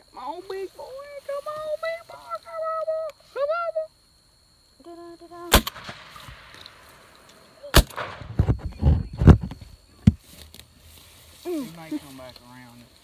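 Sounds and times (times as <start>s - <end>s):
shotgun shots: 5.5s - 7.1s, 7.7s - 8.6s
low thumps: 7.8s - 10.2s.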